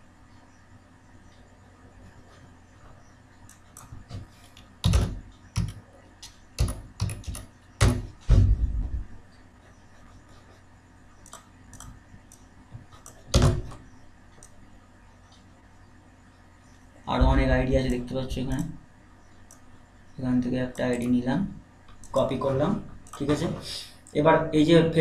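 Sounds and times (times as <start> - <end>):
keyboard typing: 2.1 - 8.6, 11.2 - 14.7.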